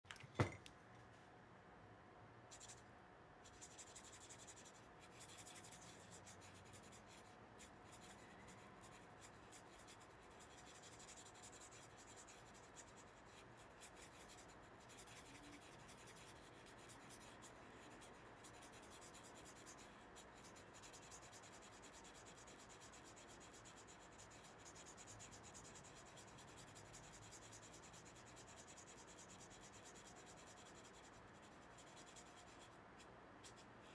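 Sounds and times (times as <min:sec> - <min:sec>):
brush strokes scratching paper: 0:03.4 - 0:33.9.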